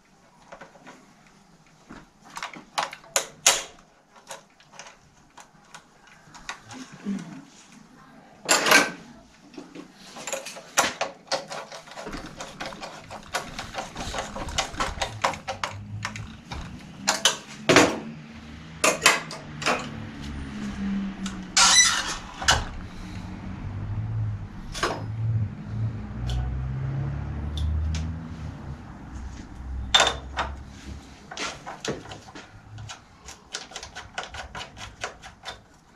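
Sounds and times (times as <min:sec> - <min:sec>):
metal scraping rasps: 0:11.4 - 0:17.3.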